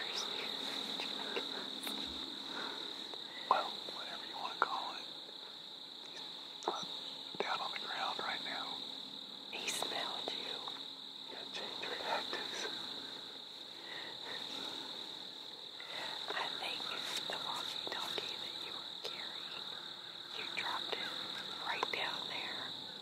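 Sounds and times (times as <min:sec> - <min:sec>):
people whispering: 0:00.0 - 0:05.1, 0:06.1 - 0:08.8, 0:09.6 - 0:13.0, 0:15.8 - 0:19.7, 0:20.3 - 0:22.8
crickets trilling: 0:00.0 - 0:23.0.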